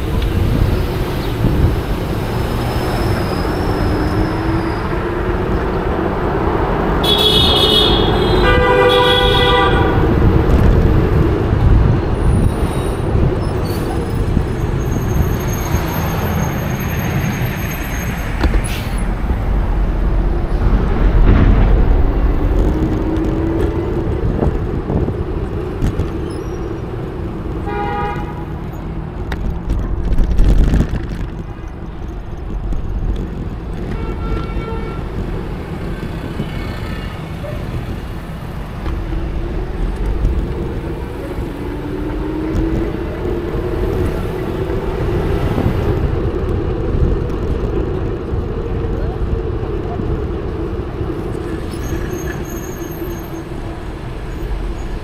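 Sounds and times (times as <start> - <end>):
street traffic rumble: 0.0 - 55.0
vehicle horn honking: 7.0 - 10.1, 27.6 - 28.4, 33.9 - 35.1.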